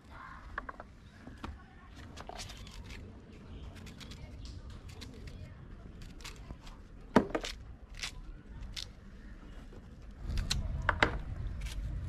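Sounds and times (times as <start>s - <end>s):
knife crunching pomegranate rind: 2.0s - 9.0s, 10.2s - 12.0s.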